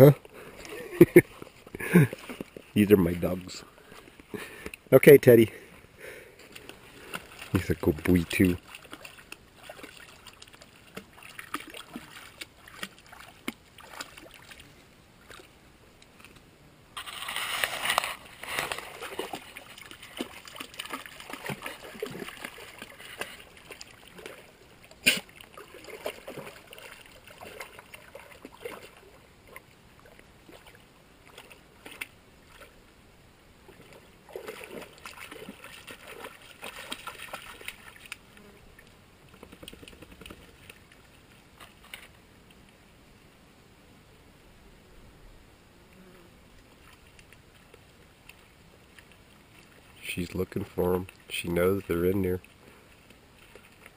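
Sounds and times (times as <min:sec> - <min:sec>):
creek water splashing: 0:00.0 - 0:42.8, 0:46.4 - 0:53.9.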